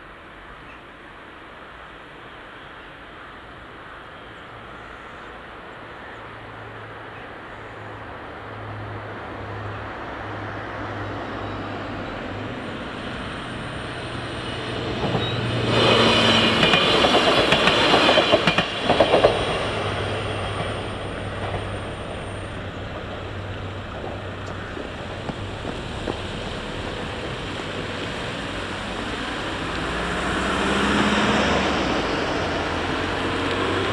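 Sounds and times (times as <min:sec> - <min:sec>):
diesel railcar passing: 0:00.0 - 0:33.9
road traffic: 0:00.0 - 0:33.9
wheel clatter over rail joints: 0:14.6 - 0:28.6.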